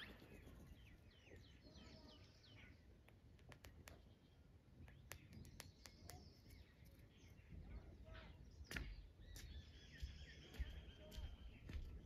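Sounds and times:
bird clicking and chirping: 0:03.0 - 0:04.2, 0:04.8 - 0:07.3.

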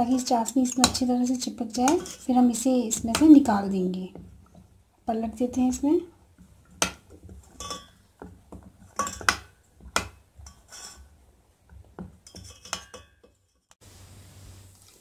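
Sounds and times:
metal spoon clinking on steel bowl: 0:01.7 - 0:03.4, 0:06.8 - 0:08.0, 0:08.9 - 0:11.0, 0:12.2 - 0:13.6.

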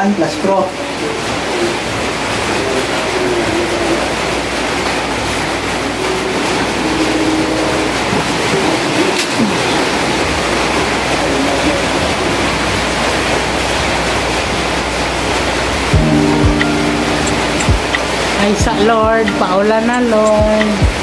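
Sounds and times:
faint voices: 0:00.7 - 0:13.4.

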